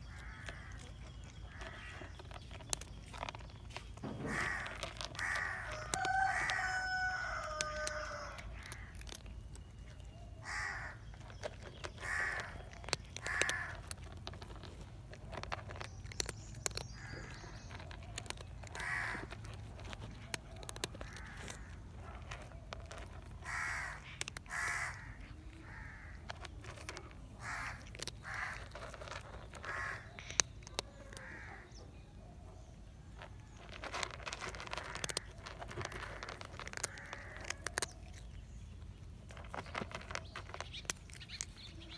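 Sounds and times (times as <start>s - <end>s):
cat crunching dry kibble: 0.0s - 41.9s
rooster crowing: 5.7s - 8.4s.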